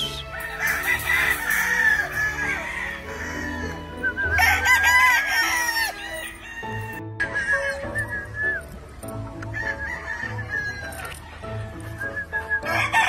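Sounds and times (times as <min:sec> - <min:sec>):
background music: 0:00.0 - 0:13.0
rooster crowing: 0:00.3 - 0:07.0, 0:09.6 - 0:11.0.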